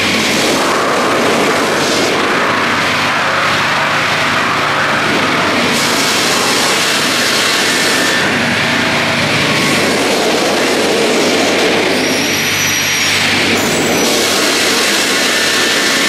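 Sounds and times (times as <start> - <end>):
low motor hum: 0.0 - 15.2
sawmill sawing a log: 0.0 - 16.0.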